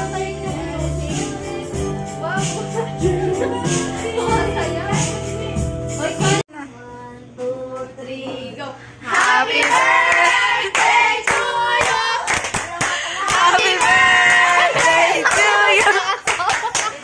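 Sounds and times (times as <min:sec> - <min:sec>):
group of people singing: 0:00.0 - 0:05.1, 0:09.0 - 0:12.4, 0:13.0 - 0:16.2
music: 0:00.0 - 0:06.4
people clapping along: 0:09.1 - 0:17.0.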